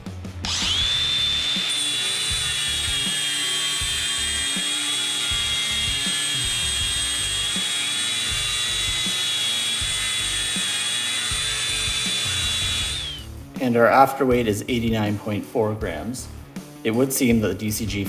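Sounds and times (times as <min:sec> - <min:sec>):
angle grinder grinding steel: 0:00.4 - 0:13.3
background music with a beat: 0:15.8 - 0:18.0.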